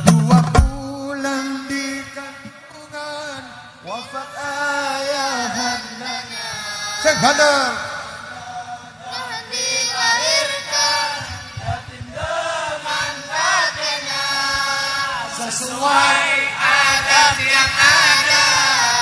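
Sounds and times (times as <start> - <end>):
musical backing: 0.0 - 1.0
person singing devotional song: 0.0 - 19.0.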